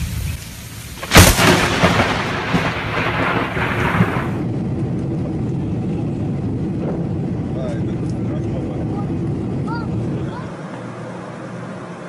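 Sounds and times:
steady low rush: 0:00.0 - 0:12.0
rumbling thunder: 0:01.0 - 0:09.6
thunder crack: 0:01.0 - 0:09.6.

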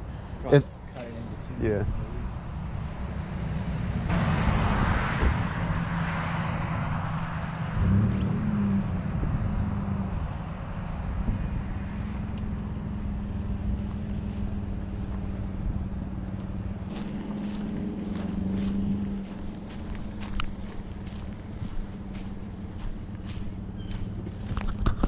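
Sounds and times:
wind rumbling on microphone: 0:01.8 - 0:25.0
pickup truck engine idling: 0:12.5 - 0:24.6.

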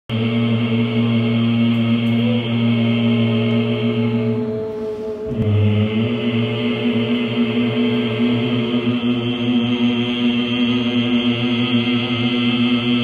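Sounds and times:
voices chanting nasal hum: 0:00.1 - 0:13.0.

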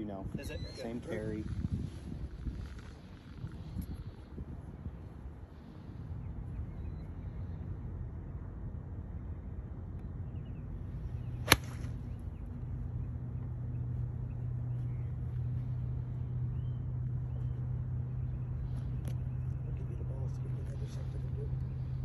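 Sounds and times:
low hum: 0:00.5 - 0:22.0
golf club striking ball: 0:11.2 - 0:12.2
club swish: 0:11.5 - 0:11.9.

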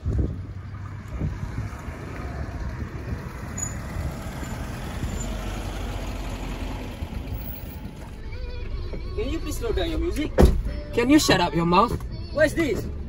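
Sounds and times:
car engine low rumble: 0:00.0 - 0:13.0.

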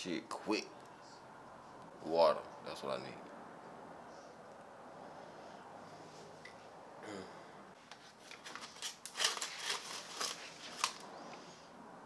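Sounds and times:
rustling and crackling handling noise: 0:07.8 - 0:11.1.

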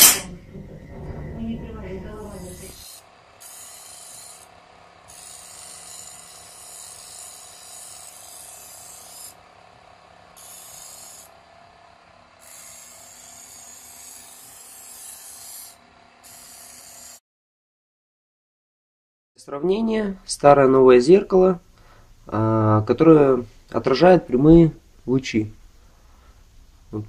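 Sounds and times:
electric grinder motor humming: 0:02.4 - 0:17.2.

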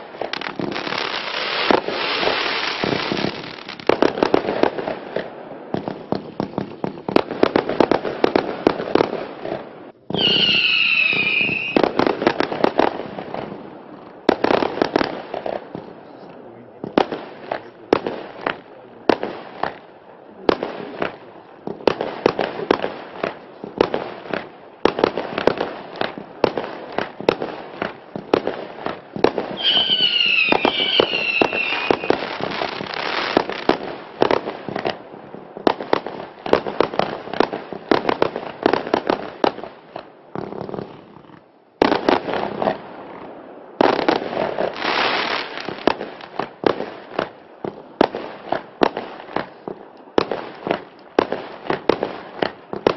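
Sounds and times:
firework crackling bursts: 0:00.0 - 0:15.8, 0:20.5 - 0:43.2, 0:43.8 - 0:52.9
falling whistle: 0:10.2 - 0:11.8, 0:29.6 - 0:32.1.

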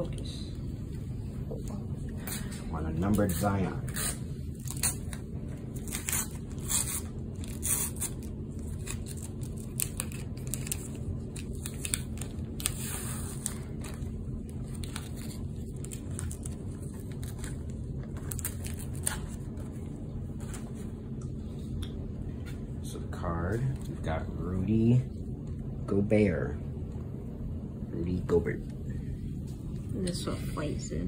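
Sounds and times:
low hum: 0:00.0 - 0:31.0
cards rustling: 0:03.0 - 0:20.9
wrapper crinkling and tearing: 0:03.9 - 0:19.5.

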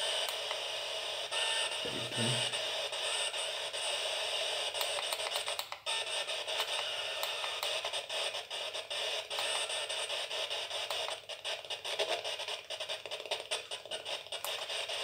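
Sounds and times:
radio static: 0:00.0 - 0:15.0
clicks: 0:04.8 - 0:05.8.

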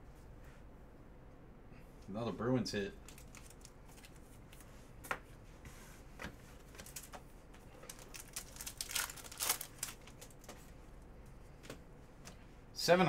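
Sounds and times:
foil wrapper crinkling and tearing: 0:03.0 - 0:04.2, 0:07.8 - 0:10.5.

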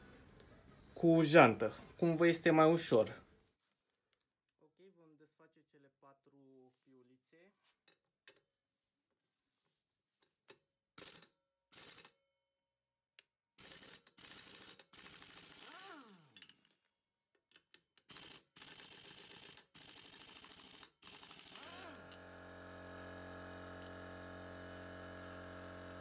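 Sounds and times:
motor winding down: 0:13.6 - 0:16.4, 0:20.3 - 0:26.0.

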